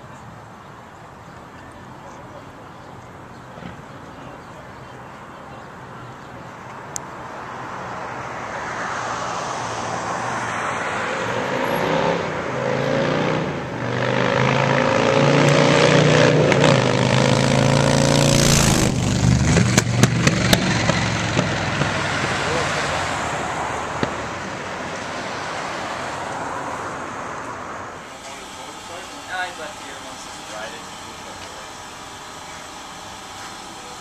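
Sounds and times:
motorcycle engine accelerating: 11.7s - 22.9s
engine pops: 18.8s - 22.0s.

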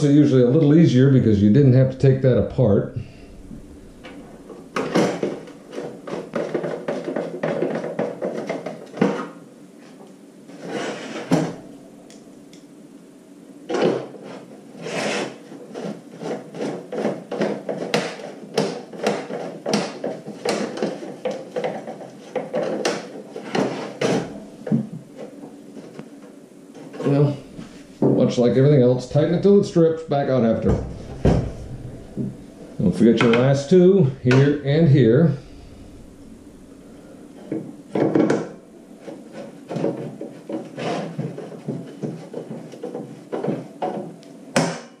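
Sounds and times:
heater knocking on wooden table: 30.5s - 34.6s.

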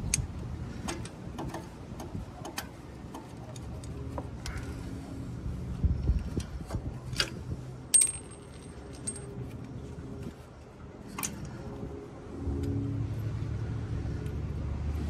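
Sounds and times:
road traffic rumble: 0.0s - 15.0s
metal hardware clinking: 7.9s - 9.4s.

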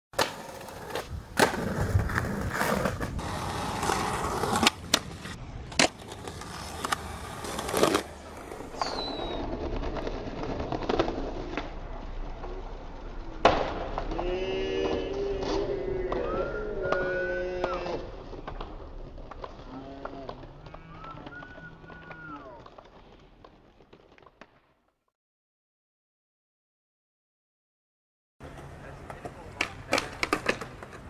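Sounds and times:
skateboard tail pops and landings: 0.2s - 6.2s, 13.4s - 14.2s
skateboard trucks grinding on stone: 0.2s - 23.2s
skateboard wheels rolling: 0.2s - 24.6s, 28.4s - 31.0s.

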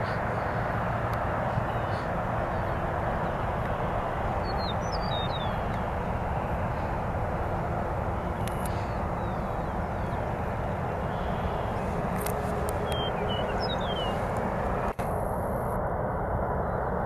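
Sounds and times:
low rumbling roar: 0.0s - 17.0s
faint bird chirps: 4.4s - 5.8s.

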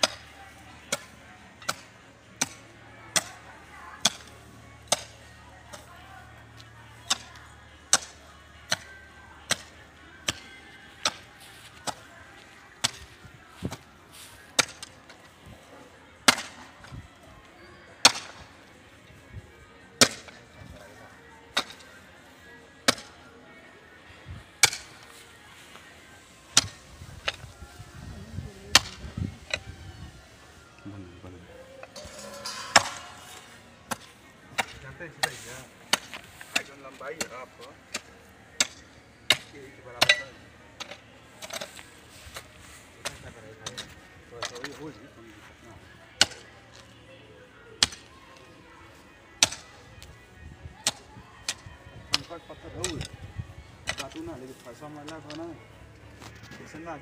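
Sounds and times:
hoe chopping hard ground: 11.0s - 12.0s, 16.2s - 16.6s, 18.0s - 18.4s, 20.0s - 20.4s, 22.9s - 23.1s, 24.6s - 25.0s, 26.5s - 27.5s, 31.9s - 41.8s, 47.8s - 48.0s, 49.4s - 49.6s.

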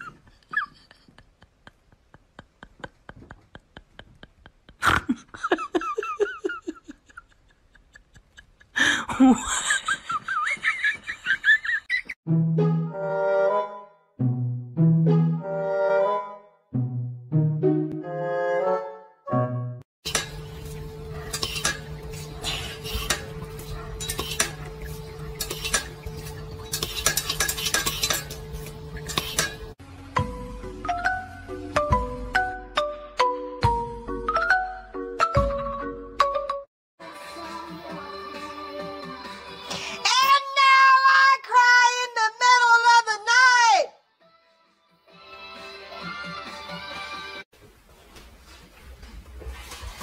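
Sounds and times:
person laughing: 0.0s - 12.2s
water spurting: 20.1s - 29.7s.

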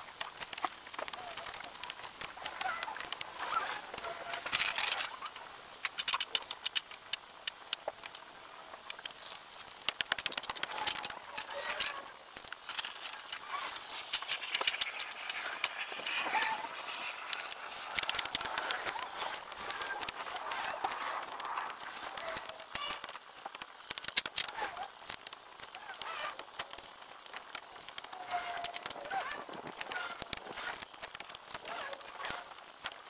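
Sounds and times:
squeaky chirping snatches: 9.1s - 23.1s.

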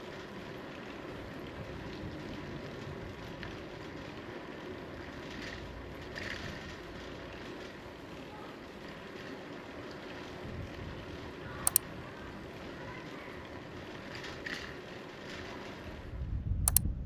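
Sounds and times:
bicycle rolling on asphalt: 0.0s - 16.8s
wind on microphone: 16.0s - 17.0s.

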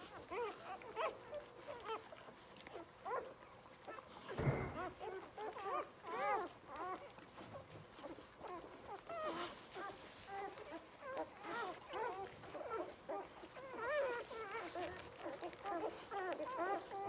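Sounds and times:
puppies squeaking and whimpering: 0.0s - 17.0s.

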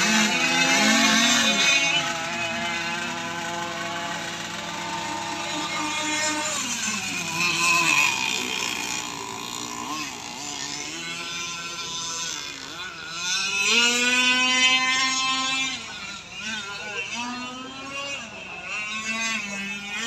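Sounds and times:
model racing boat engines whining: 0.0s - 20.0s.

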